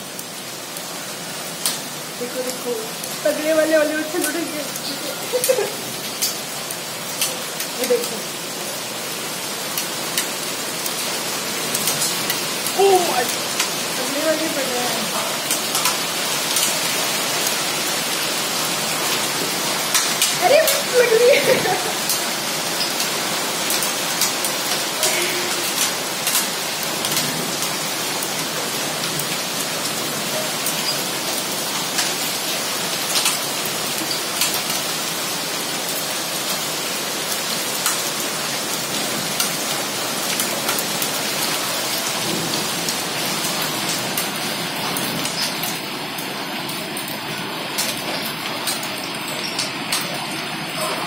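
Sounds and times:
hailstones ticking on hard surfaces: 0:00.0 - 0:51.0
heavy rain hissing: 0:00.0 - 0:51.0.

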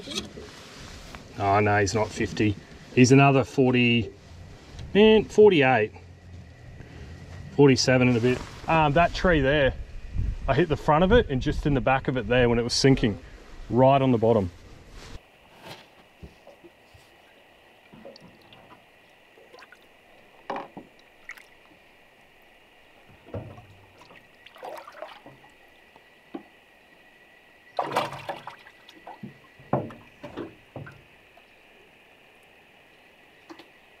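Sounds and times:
water sloshing and splashing: 0:15.5 - 0:26.7, 0:27.6 - 0:31.8
knocks: 0:29.2 - 0:31.0.

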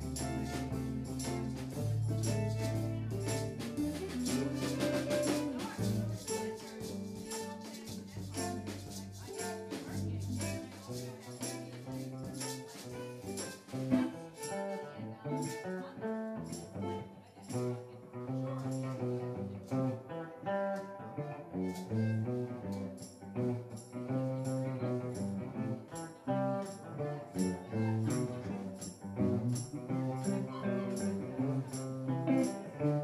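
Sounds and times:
drum kit: 0:00.0 - 0:14.2
maracas shaking: 0:00.0 - 0:19.9, 0:21.6 - 0:33.0
bass guitar: 0:00.0 - 0:33.0
electric guitars: 0:00.0 - 0:33.0.

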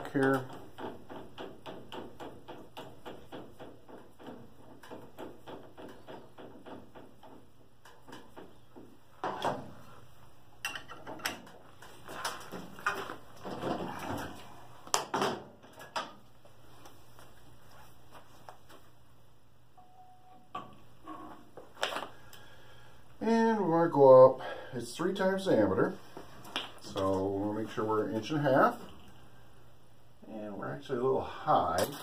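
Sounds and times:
metal clunks and knocks: 0:00.4 - 0:09.8, 0:12.4 - 0:14.4.

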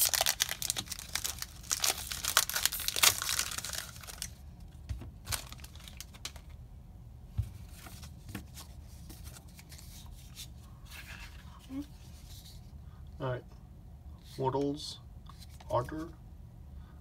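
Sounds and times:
cards rustling: 0:00.0 - 0:04.4, 0:05.2 - 0:06.5, 0:07.6 - 0:12.6
foil wrapper crinkling and tearing: 0:00.0 - 0:04.4, 0:05.2 - 0:06.6.

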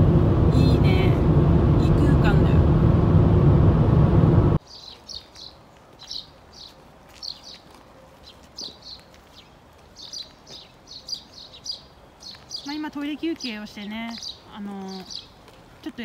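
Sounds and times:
car cabin road noise: 0:00.0 - 0:04.6
small birds chirping: 0:04.6 - 0:16.0.

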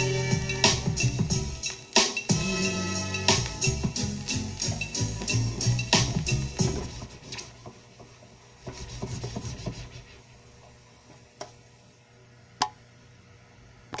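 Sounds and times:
soft rubbing and light taps: 0:06.6 - 0:11.6.

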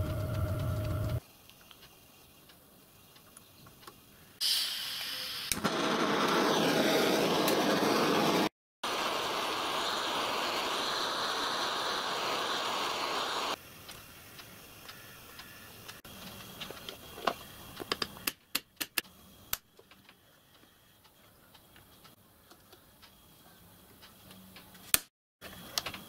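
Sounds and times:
gas torch flame hissing: 0:04.4 - 0:18.0.

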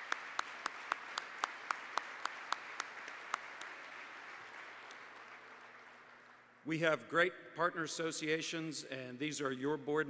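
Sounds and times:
audience applauding: 0:00.0 - 0:06.4
sharp steady claps: 0:00.0 - 0:06.4.

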